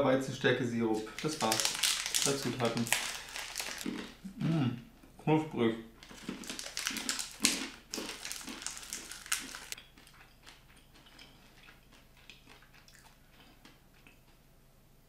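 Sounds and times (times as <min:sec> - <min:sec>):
person chewing crunchy food: 0:01.0 - 0:04.3, 0:06.0 - 0:14.5.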